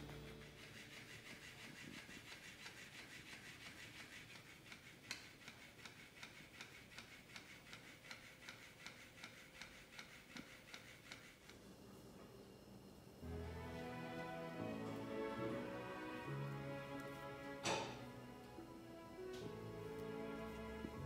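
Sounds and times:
faint motor whir: 0.0s - 21.0s.

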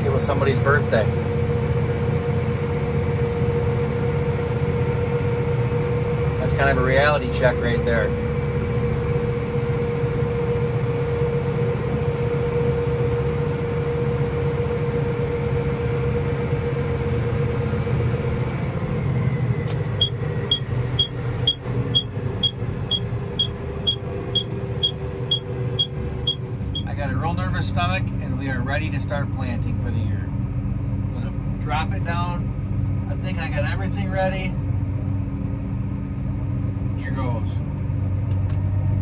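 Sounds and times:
tractor engine drone with whine: 0.0s - 39.0s
sharp high ticking: 20.0s - 26.9s.

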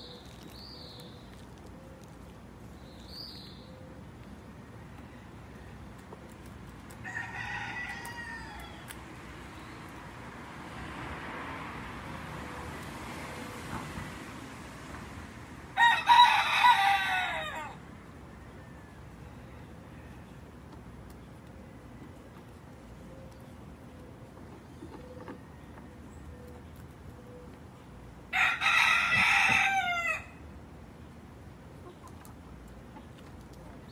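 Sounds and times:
rooster crowing: 7.0s - 8.9s, 15.8s - 17.8s, 28.3s - 30.4s.

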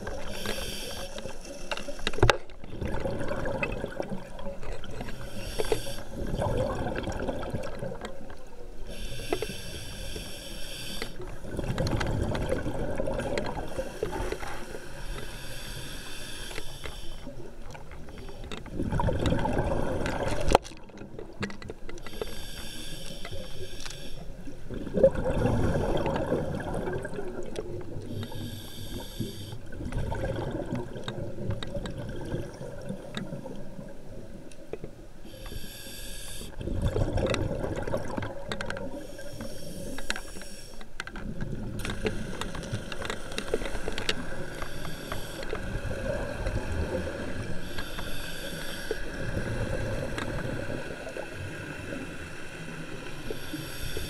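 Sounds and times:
hissing regulator inhalation: 0.2s - 2.2s, 8.9s - 11.2s, 13.6s - 17.3s, 22.1s - 24.3s, 28.1s - 29.6s, 35.3s - 36.6s, 38.9s - 40.9s, 41.8s - 50.0s, 53.2s - 54.0s
exhaled air bubbling: 2.7s - 9.0s, 11.2s - 14.4s, 17.3s - 21.8s, 24.5s - 34.4s, 36.4s - 39.3s.

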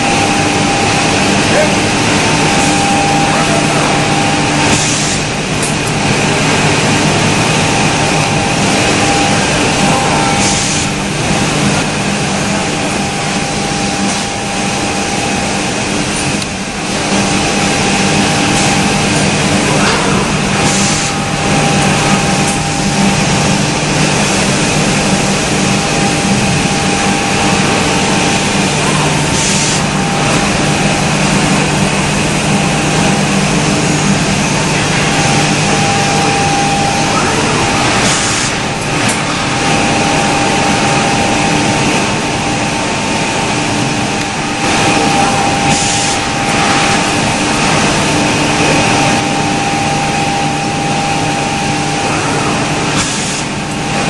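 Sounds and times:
woodworking machine drone and whine: 0.0s - 54.0s.

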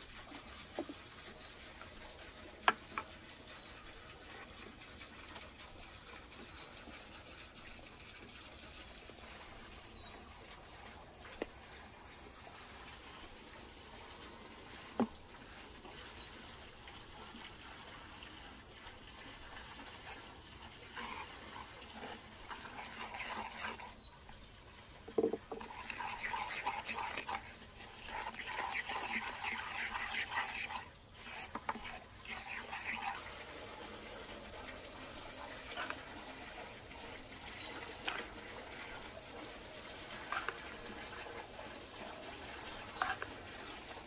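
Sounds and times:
liquid pouring into bowl: 19.4s - 44.0s
wooden spoon stirring marinade: 20.6s - 33.3s, 35.5s - 44.0s.

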